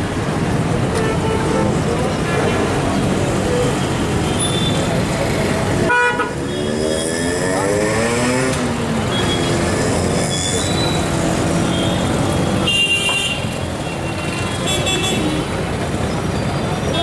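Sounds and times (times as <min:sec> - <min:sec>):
vehicle engines running: 0:01.6 - 0:12.7.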